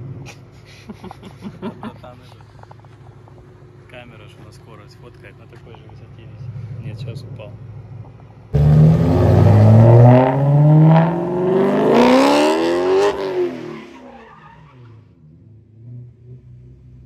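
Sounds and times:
faint engine hum: 0.0 - 8.8
car engine revving hard: 8.5 - 14.1.

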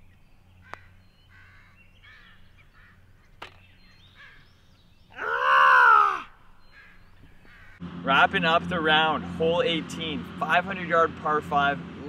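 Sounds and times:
man groaning loudly: 5.2 - 6.3.

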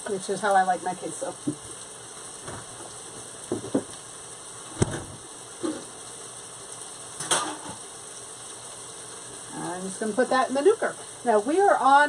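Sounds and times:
onions and peppers sizzling in a pan: 0.0 - 12.0
soft kitchen knocks: 3.5 - 4.0.

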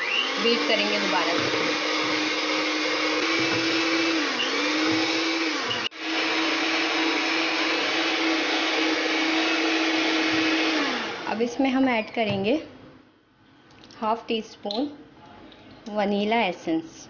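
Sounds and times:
electric hand mixer running: 0.0 - 11.4.

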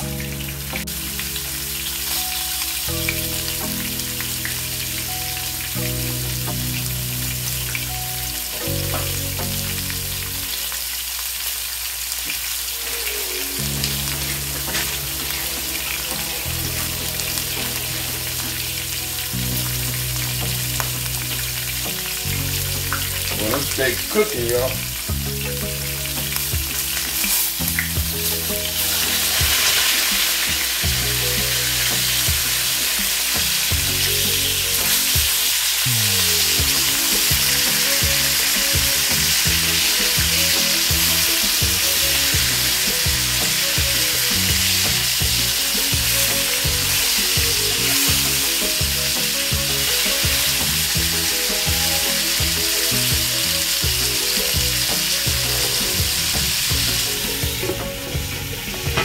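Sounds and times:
steaks sizzling in oil: 0.0 - 59.0.

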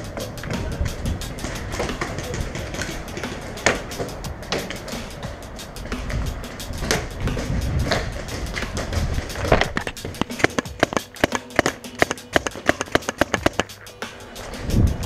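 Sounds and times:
scuffling footsteps thumps: 0.0 - 14.9
paintball markers firing: 7.9 - 13.8.

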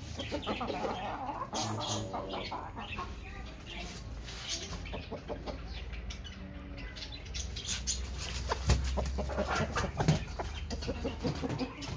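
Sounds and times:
chickens clucking softly: 0.0 - 11.9
rustling on straw: 3.5 - 4.8.

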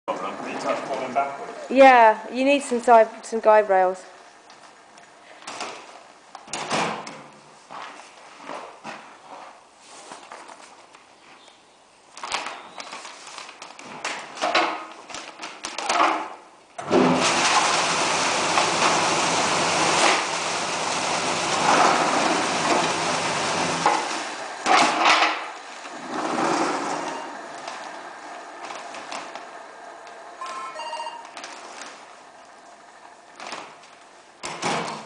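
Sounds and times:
plastic bags rustling: 12.1 - 15.7, 22.5 - 34.4
bagging machine motor hum: 16.8 - 35.0.

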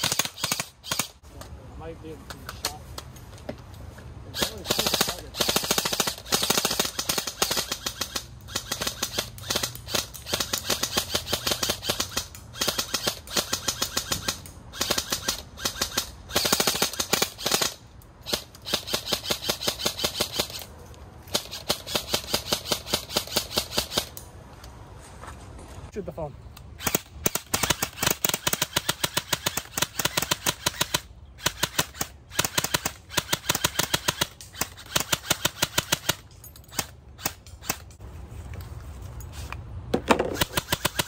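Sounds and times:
airsoft rifles firing: 0.0 - 1.2, 4.3 - 20.6, 21.3 - 24.2, 26.8 - 37.9, 40.0 - 41.0.

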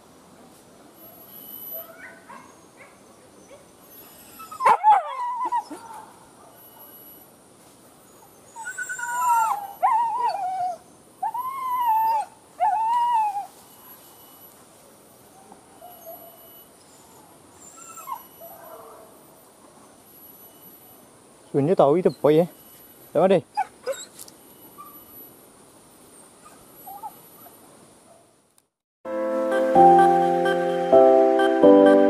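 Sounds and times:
dog yelp: 1.0 - 7.2, 15.3 - 19.1, 23.5 - 25.2, 26.4 - 28.2
dogs whining and howling: 1.1 - 6.9, 8.1 - 13.6, 15.3 - 19.1, 23.6 - 24.2, 26.4 - 27.6.

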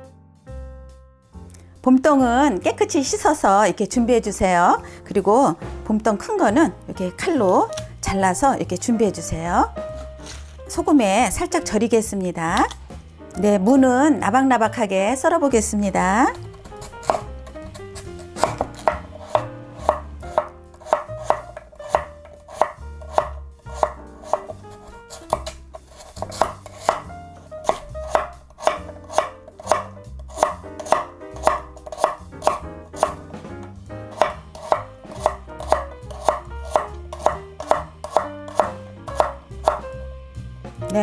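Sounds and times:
knife striking wooden cutting board: 16.5 - 39.8.

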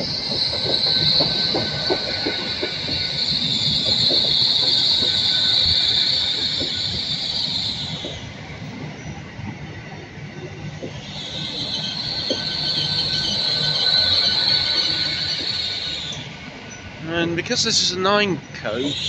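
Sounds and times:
wheel clicks over rail joints: 0.0 - 6.8
train wheels and brakes squealing: 0.0 - 19.0.

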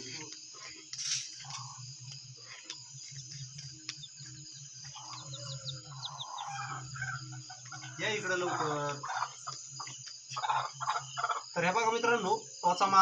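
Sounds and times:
crickets chirping: 0.0 - 13.0
high ticks: 0.2 - 7.9
low pulsing call: 1.4 - 8.7.

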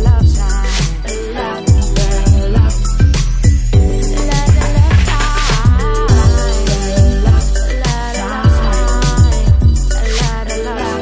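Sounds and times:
kick drum beat: 0.0 - 0.5, 1.7 - 9.9
held chords: 1.1 - 11.0.

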